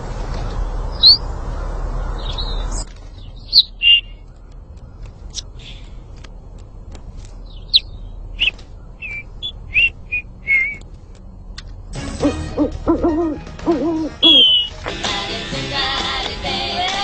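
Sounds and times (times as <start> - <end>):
parrot chirping and whistling: 1.0 - 1.2, 3.5 - 4.1, 7.7 - 10.8, 12.9 - 14.8.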